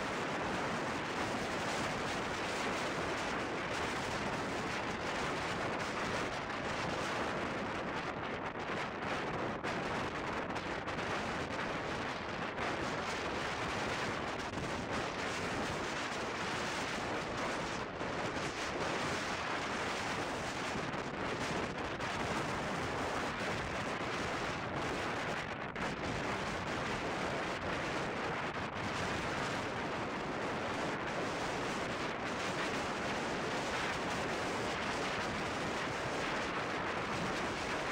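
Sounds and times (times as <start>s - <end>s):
wind buffeting microphone: 0.0s - 37.9s.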